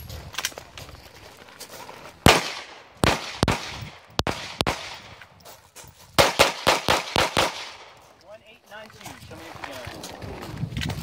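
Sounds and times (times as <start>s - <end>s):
pistol shots: 2.2s - 5.2s, 6.2s - 8.1s.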